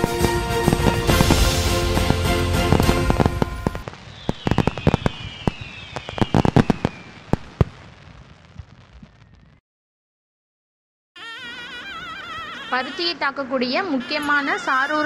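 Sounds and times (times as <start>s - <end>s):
music: 0.0s - 3.8s
firework falling whistle: 0.0s - 9.6s
fireworks bangs and crackles: 0.0s - 9.6s.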